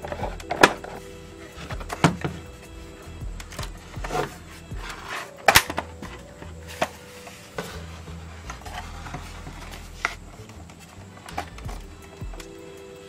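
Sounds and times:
plastic casing clacking: 0.0 - 2.6, 3.4 - 7.8.

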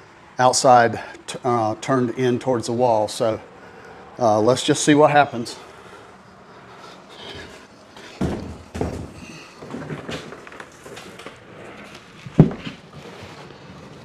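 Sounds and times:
shuffling handling noise: 6.7 - 14.0.

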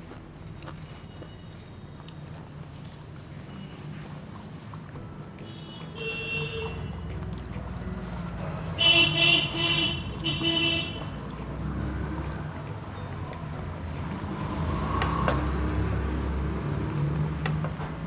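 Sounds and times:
low traffic rumble: 0.0 - 18.0
vehicle horns honking: 5.4 - 6.9, 8.8 - 11.2.

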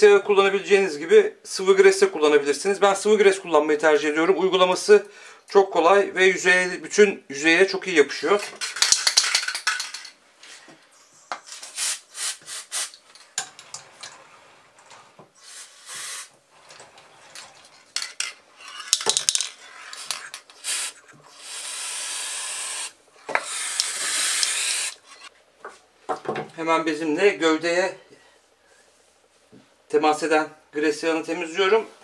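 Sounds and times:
aerosol spray hissing: 11.7 - 13.0, 15.4 - 16.3, 20.6 - 25.0.

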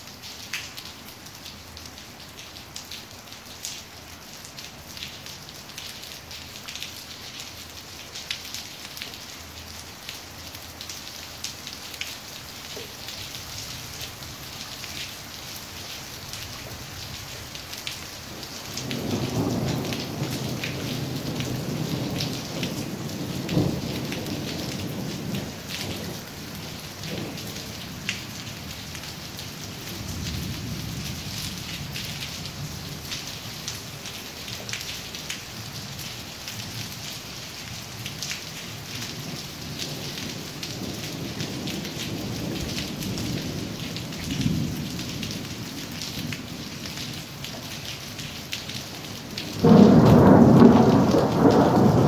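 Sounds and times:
raindrops clicking close by: 0.0 - 52.0
steady rain falling: 0.0 - 52.0
thunder rumbling: 18.8 - 27.8, 49.6 - 52.0.

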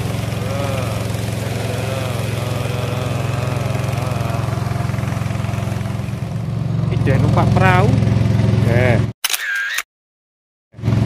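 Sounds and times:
rising and falling tone: 0.0 - 8.2
motorboat engine running: 0.0 - 9.1, 10.8 - 11.0.

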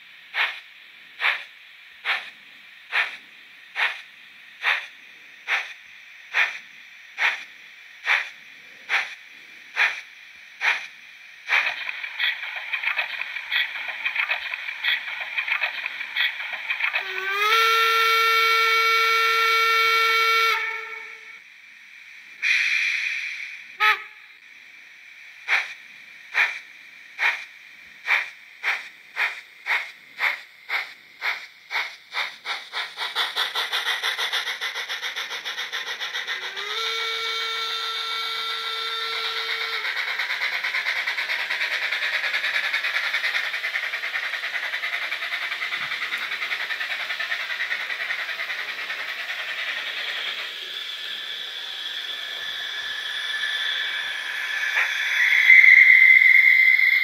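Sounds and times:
steam locomotive chuffs: 0.0 - 57.0
steam whistle: 16.9 - 21.4, 23.7 - 24.4, 36.3 - 40.0, 50.9 - 57.0.

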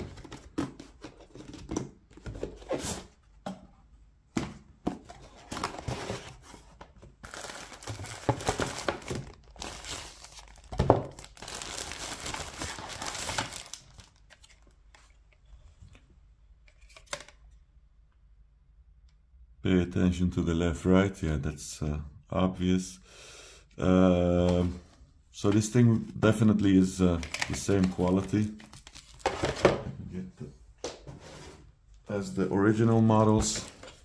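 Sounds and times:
tissue paper rustling: 7.2 - 14.2.

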